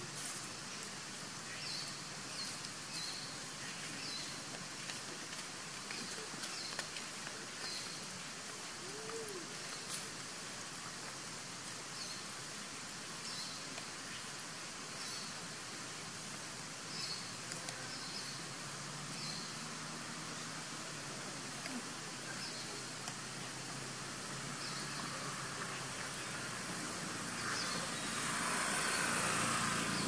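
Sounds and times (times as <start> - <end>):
steady hiss: 0.0 - 30.0.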